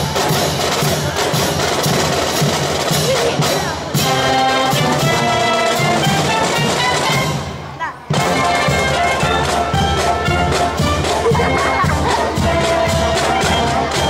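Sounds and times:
marching drums and percussion: 0.0 - 14.0
brass and saxophones chords: 2.9 - 14.0.

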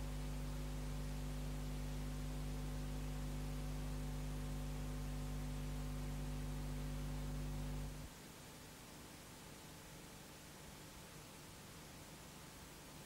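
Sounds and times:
tape hiss: 0.0 - 8.5
electrical mains hum: 0.0 - 13.0.

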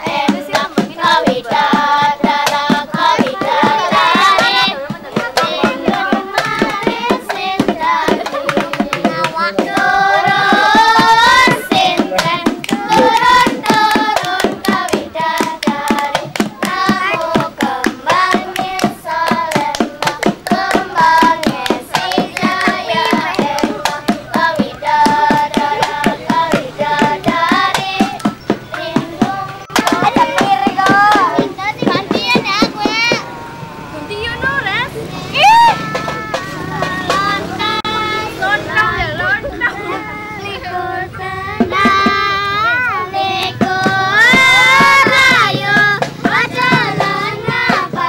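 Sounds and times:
voices singing in unison: 0.0 - 48.0
sharp hand claps: 10.5 - 33.2.

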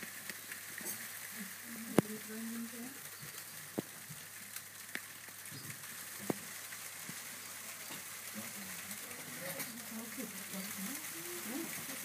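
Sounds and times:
steady hiss: 0.0 - 12.0
faint voices: 0.8 - 3.7, 7.6 - 12.0.

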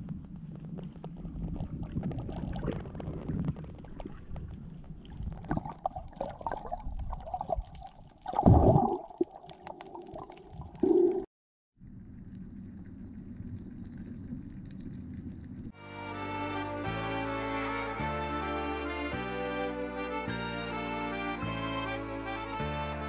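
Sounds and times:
small underwater clicks: 0.0 - 11.2, 12.1 - 15.7
underwater water rumbling and gurgling: 0.0 - 15.8
loud underwater burst: 8.2 - 11.3.

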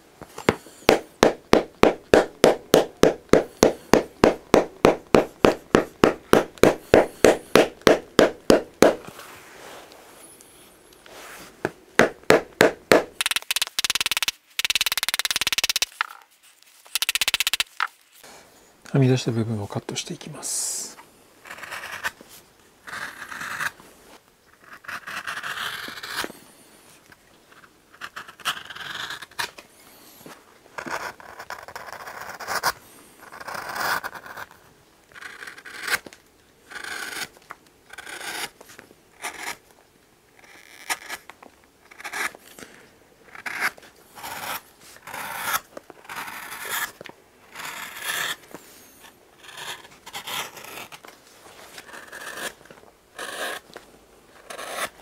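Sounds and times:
knife slicing leather: 0.4 - 9.2.

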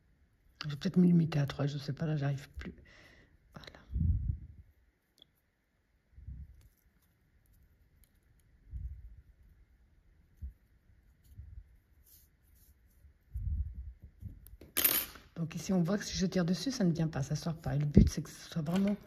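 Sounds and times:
soft yarn and crochet hook handling: 4.4 - 14.7, 16.0 - 19.0.

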